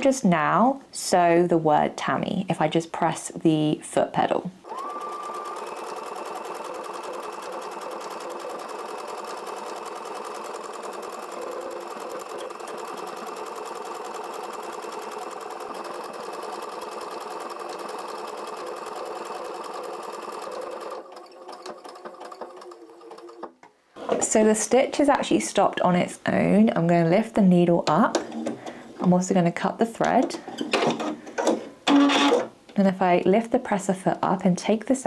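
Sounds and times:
sewing machine motor whine: 4.6 - 23.4.

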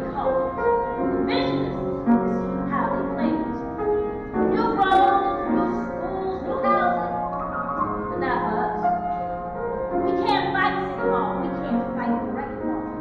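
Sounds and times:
piano accompaniment: 0.0 - 13.0
woman singing: 4.5 - 7.1, 10.1 - 12.7.

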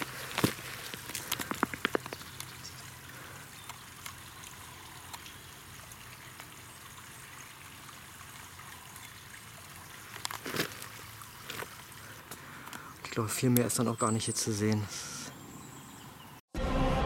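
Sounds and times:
trickling stream: 0.0 - 16.4.

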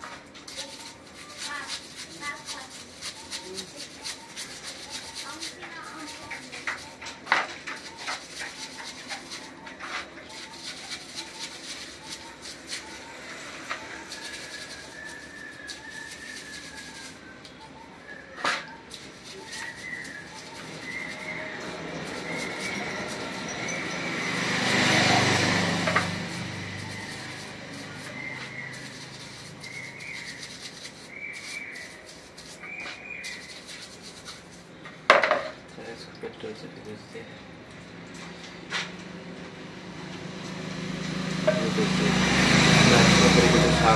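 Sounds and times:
brush scrubbing metal: 0.0 - 35.6, 40.3 - 43.9
liquid sloshing: 18.6 - 39.0.

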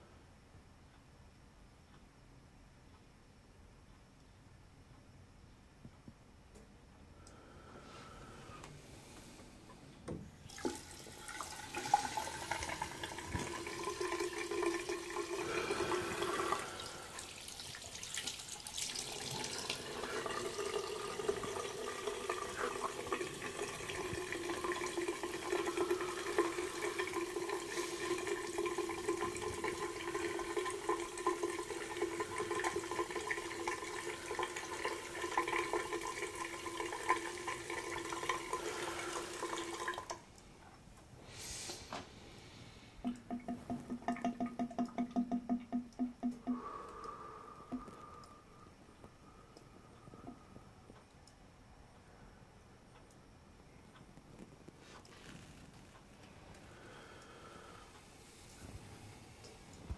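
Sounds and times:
water running from tap: 10.5 - 40.2, 43.0 - 46.6.

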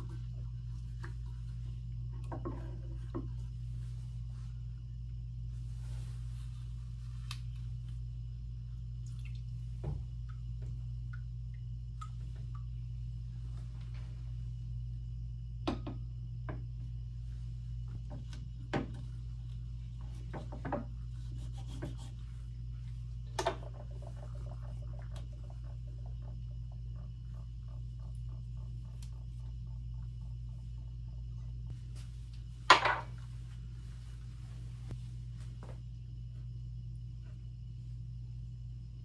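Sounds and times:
low hum: 0.0 - 39.0
glass beaker set down on tiles: 32.7 - 33.2.

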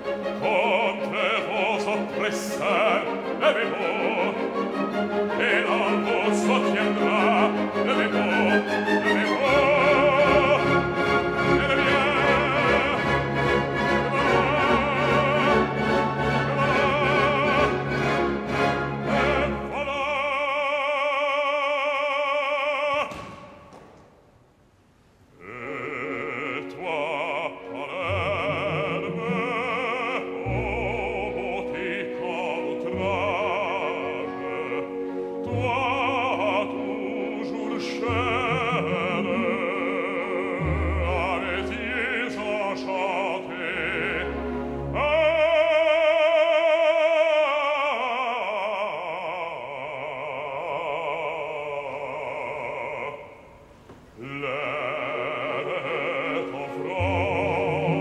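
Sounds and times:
orchestral accompaniment: 0.0 - 20.9, 25.4 - 53.2, 54.2 - 58.0.

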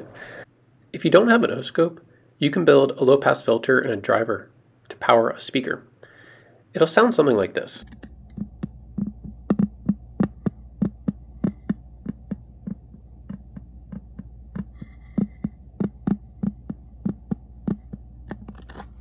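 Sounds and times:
steady electrical hum: 0.0 - 19.0
heartbeat thumps through loudspeaker: 7.8 - 18.5.

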